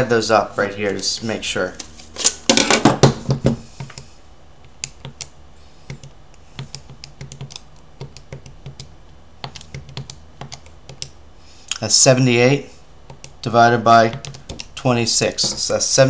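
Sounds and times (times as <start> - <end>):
calculator keys clicking: 5.9 - 11.2, 14.1 - 14.8.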